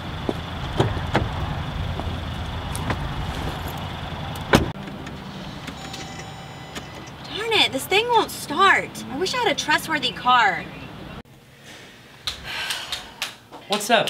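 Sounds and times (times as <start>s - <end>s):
low outdoor rumble: 0.0s - 11.5s
car door shutting: 0.6s - 1.4s, 2.8s - 7.1s.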